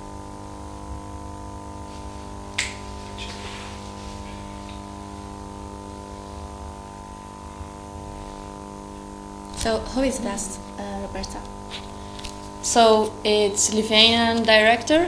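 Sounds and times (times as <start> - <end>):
electrical hum: 0.0 - 15.0
sharp click: 2.6 - 3.4.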